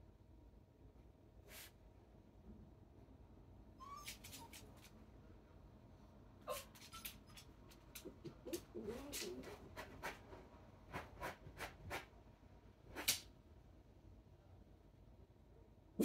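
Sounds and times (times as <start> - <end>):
dog whining: 3.8 - 4.7, 6.5 - 7.5, 8.4 - 9.6.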